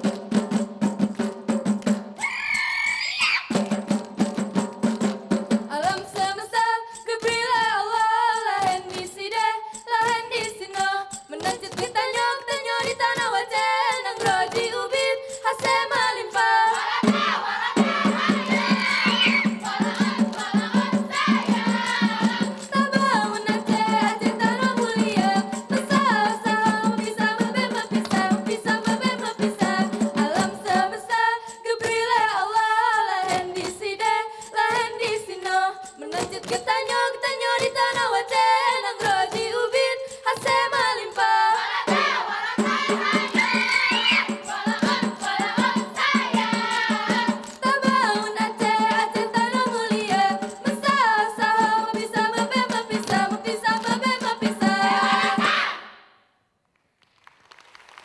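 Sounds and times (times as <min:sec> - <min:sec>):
women singing in unison: 0:05.6 - 0:56.0
synchronised hand claps and body slaps: 0:57.0 - 0:58.0.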